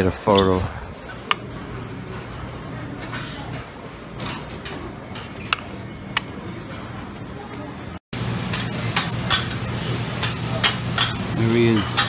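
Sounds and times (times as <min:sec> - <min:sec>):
restaurant background din: 0:00.0 - 0:12.0.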